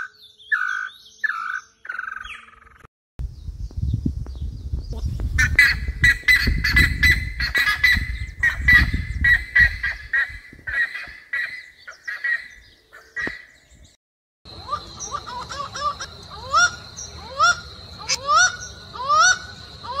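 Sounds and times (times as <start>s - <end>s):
ibis honking calls: 14.5s - 20.0s.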